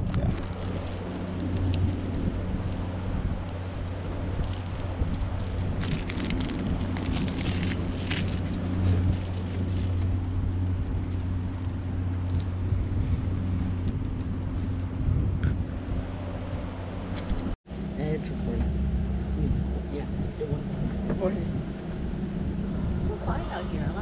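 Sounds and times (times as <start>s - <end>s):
water splashing along hull: 0.0s - 17.6s
boat engine drone: 0.0s - 24.0s.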